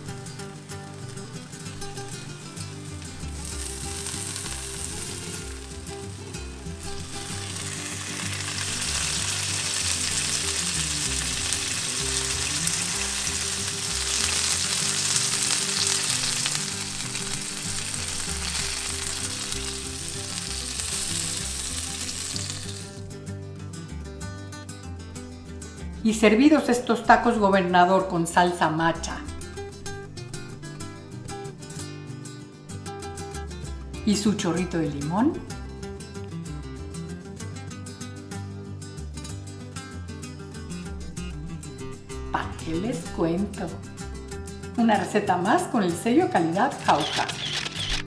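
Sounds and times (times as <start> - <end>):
oil and cheese sizzling: 0.0 - 23.0.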